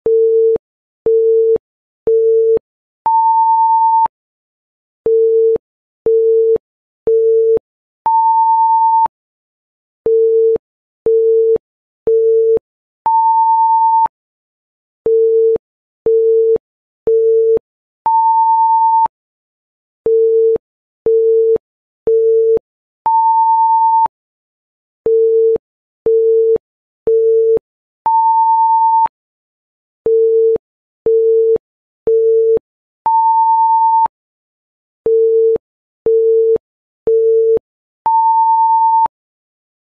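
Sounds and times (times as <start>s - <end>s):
electronic timer beeps: 3.1s - 4.1s, 7.1s - 9.1s, 17.1s - 19.1s, 22.1s - 24.1s, 32.1s - 34.1s, 35.1s - 39.1s.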